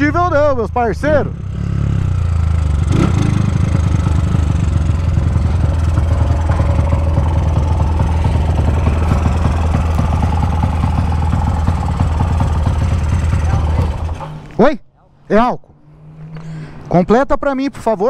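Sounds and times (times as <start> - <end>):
motorcycle engine idling: 1.3 - 14.6.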